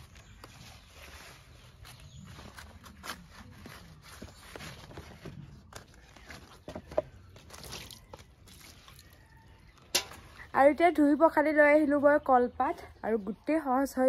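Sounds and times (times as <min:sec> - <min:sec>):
knife cutting banana leaves: 0:01.3 - 0:06.4.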